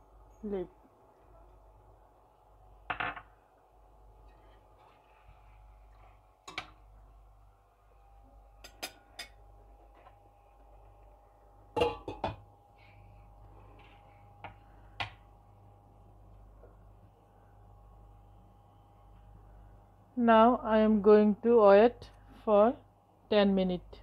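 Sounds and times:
faint steady hum: 0.0s - 24.0s
lid knocking on pot: 11.8s - 12.4s.

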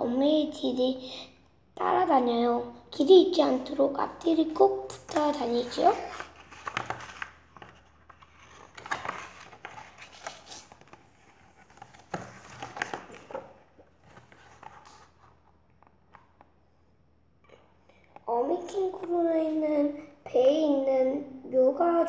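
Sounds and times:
book pages turning: 4.9s - 16.5s.

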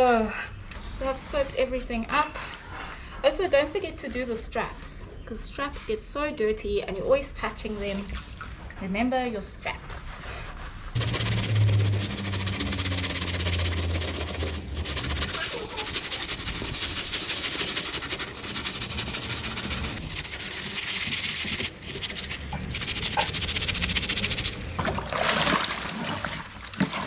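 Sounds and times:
brush scrubbing fabric: 10.5s - 24.8s.

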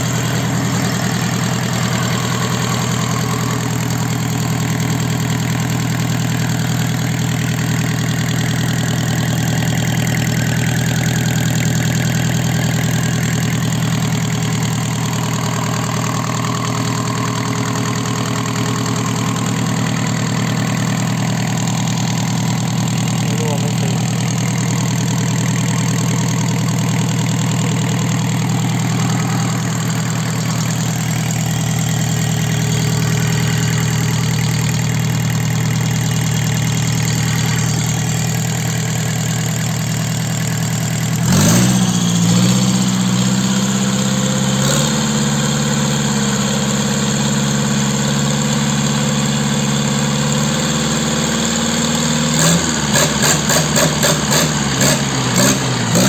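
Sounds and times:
diesel engine idling and revving: 0.0s - 56.0s.

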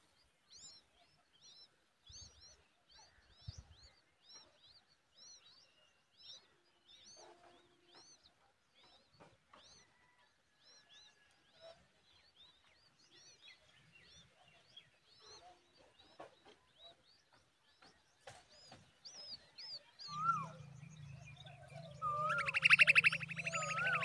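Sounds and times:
nestlings chirping: 17.8s - 24.0s
whistled glides: 22.0s - 24.0s.

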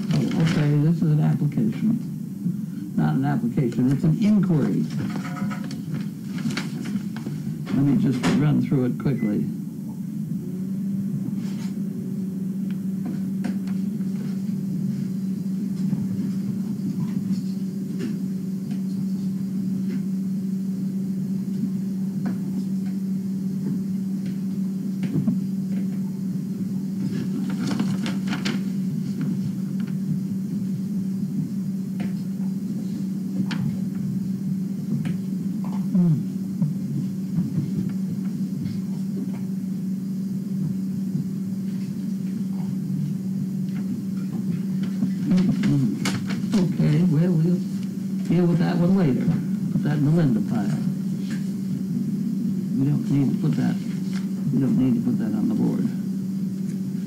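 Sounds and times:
paper rustling: 0.0s - 0.8s, 4.6s - 7.6s, 27.0s - 30.0s, 44.8s - 47.1s, 53.3s - 54.3s
machine humming: 0.0s - 57.0s.

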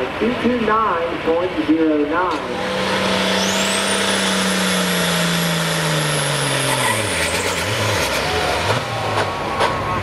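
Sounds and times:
diesel engine at high revs: 2.2s - 10.0s
high turbo whine: 2.2s - 10.0s.

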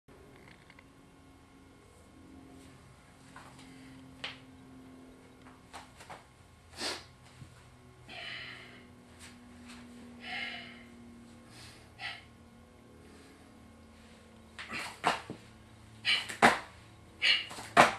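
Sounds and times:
faint steady hum: 0.1s - 17.9s
man breathing heavily: 6.7s - 7.2s, 8.0s - 17.9s
hands tapping on exercise mat: 16.1s - 16.7s, 17.5s - 17.9s.

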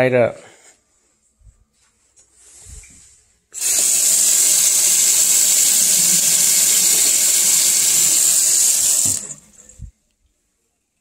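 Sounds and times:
faucet running into metal sink: 3.6s - 9.8s.

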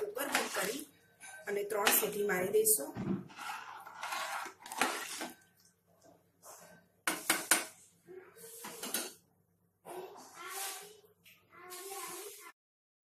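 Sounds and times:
metal ladle scraping a pot: 0.0s - 2.2s, 3.2s - 5.5s, 7.1s - 7.8s, 11.7s - 12.5s.

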